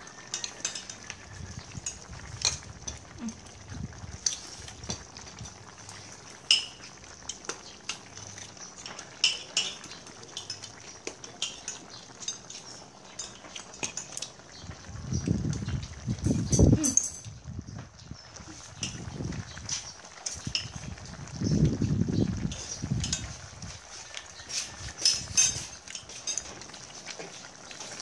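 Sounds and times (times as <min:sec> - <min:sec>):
utensils clinking on bowls: 0:00.0 - 0:03.3, 0:06.4 - 0:14.4, 0:16.2 - 0:17.4, 0:19.7 - 0:20.9, 0:22.4 - 0:23.4, 0:24.4 - 0:28.0.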